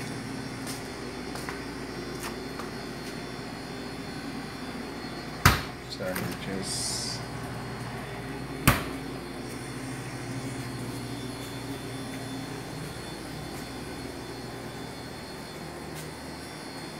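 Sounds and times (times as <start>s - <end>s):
kitchen machinery humming: 0.0s - 16.9s.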